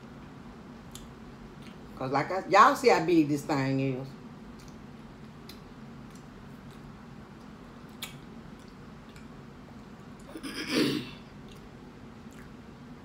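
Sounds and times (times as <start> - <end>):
fan and air conditioning hum: 0.0 - 13.0
faint chewing clicks: 0.2 - 1.8, 4.5 - 10.3, 11.3 - 12.6.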